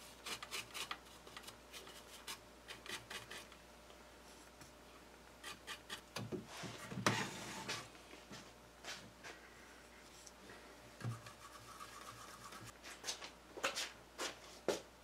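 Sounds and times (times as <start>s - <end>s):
paintbrush stroking on wood: 11.1s - 12.7s.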